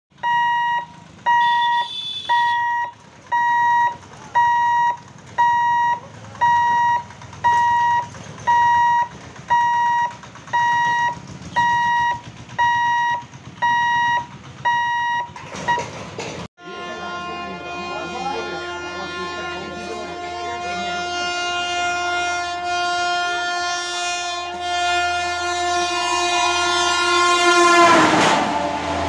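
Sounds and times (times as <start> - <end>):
low rumble of road traffic: 0.1 - 29.0
level crossing warning beeps: 0.2 - 15.9.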